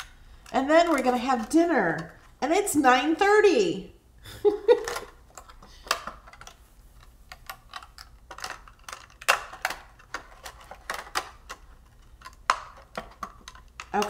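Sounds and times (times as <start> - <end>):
plastic sheet crackling and clicking: 4.8 - 14.0.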